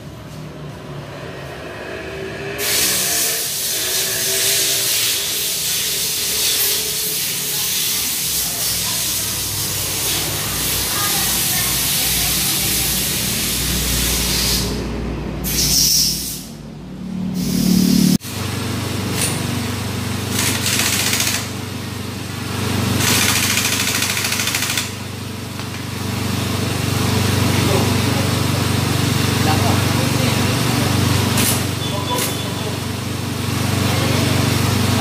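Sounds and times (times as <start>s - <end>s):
pneumatic impact wrench: 2.6s - 16.6s, 19.0s - 19.5s, 20.2s - 21.7s, 22.9s - 25.9s, 31.2s - 32.4s.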